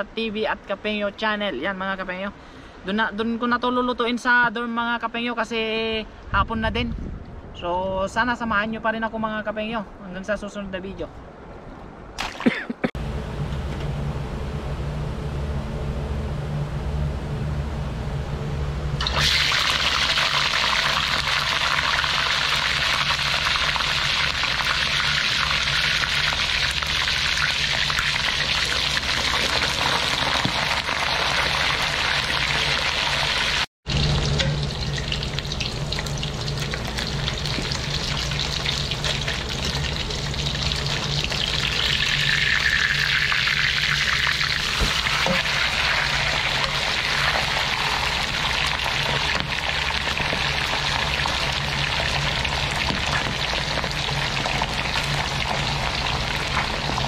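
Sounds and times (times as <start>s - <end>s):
fish deep-frying in hot oil: 19.0s - 57.0s.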